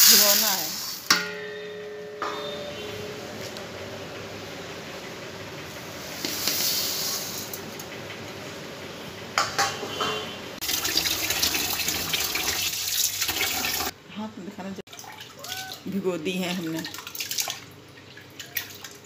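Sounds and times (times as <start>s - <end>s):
water running into a pot: 0.0s - 1.6s, 10.6s - 14.0s.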